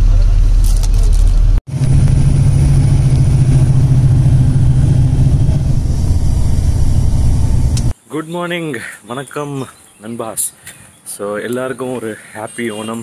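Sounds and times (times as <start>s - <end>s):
bus engine drone: 0.0s - 7.9s
road rumble: 0.0s - 8.0s.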